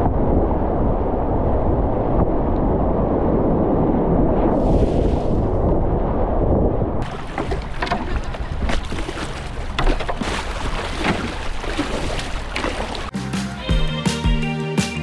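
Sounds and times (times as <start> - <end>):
muffled rush: 0.0 - 13.1
paddle splashes and drips: 7.0 - 13.1
water splashing and trickling: 7.0 - 13.1.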